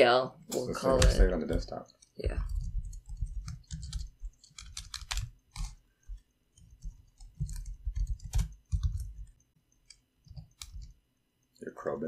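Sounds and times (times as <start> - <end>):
computer keyboard typing: 0.8 - 11.6.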